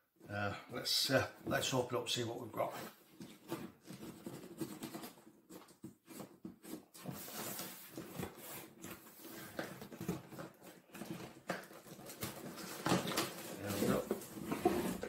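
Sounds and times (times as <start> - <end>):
hands handling cardboard box: 2.8 - 15.0
fingers scratching cardboard: 3.2 - 12.8.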